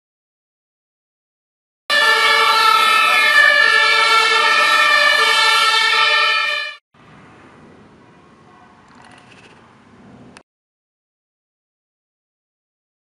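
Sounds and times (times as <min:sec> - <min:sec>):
loud chord horn: 0:01.9 - 0:06.8.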